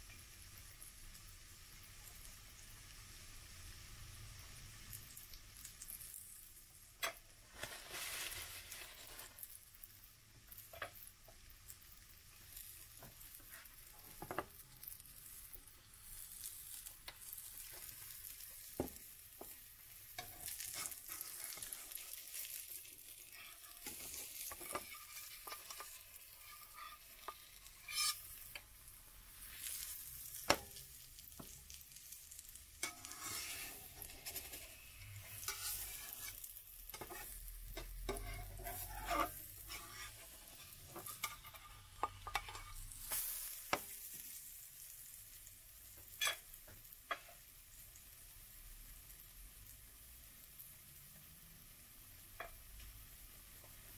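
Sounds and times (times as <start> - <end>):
pancake sizzling in a pan: 0.0 - 53.9
metal spatula scraping a pan: 7.0 - 9.9, 10.5 - 44.9, 46.0 - 46.5.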